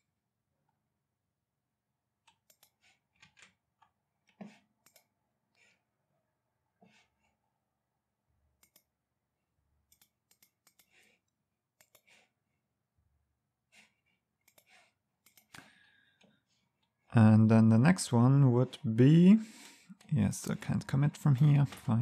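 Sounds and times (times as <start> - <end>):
faint computer mouse clicks: 2.3 - 2.8, 8.6 - 8.9, 9.9 - 11.0, 11.8 - 12.1, 14.4 - 16.3.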